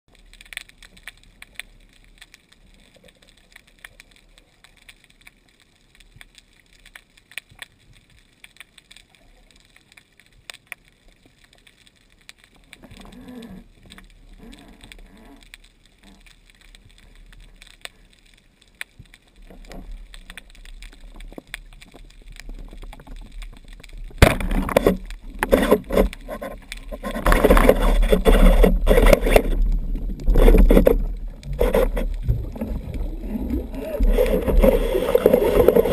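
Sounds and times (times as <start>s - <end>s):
faint underwater clicks: 0.1s - 35.9s
underwater ambience: 0.1s - 35.9s
fish thrashing against speargun: 24.2s - 32.1s, 33.4s - 35.9s.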